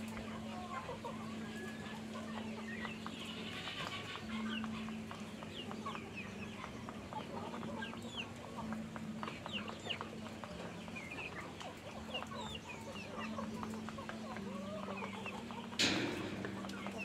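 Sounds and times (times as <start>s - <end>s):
chickens clucking and calling: 0.0s - 17.0s
low steady hum: 12.0s - 17.0s.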